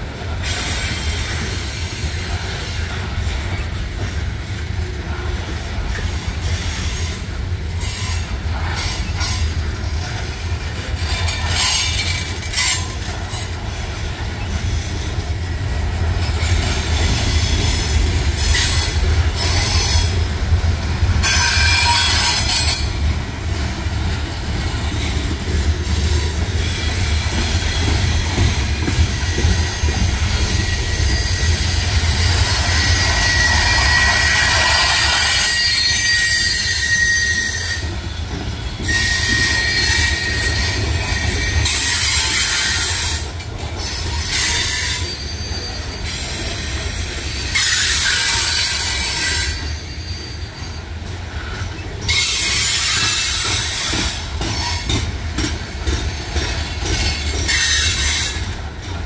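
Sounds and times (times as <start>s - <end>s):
freight train rolling rumble: 0.0s - 59.0s
metal wheel squeal: 29.7s - 37.9s, 38.7s - 43.1s, 43.9s - 46.6s, 47.4s - 50.9s.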